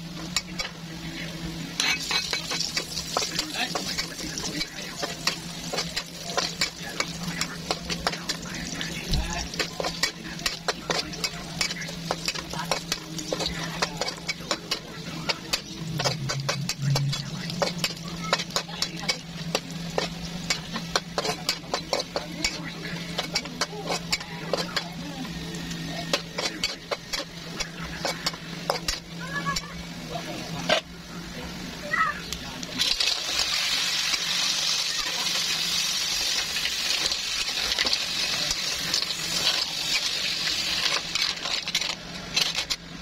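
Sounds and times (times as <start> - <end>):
food sizzling: 0.0 - 43.0
metal spatula scraping wok: 1.8 - 25.0, 25.8 - 29.7, 32.8 - 42.9.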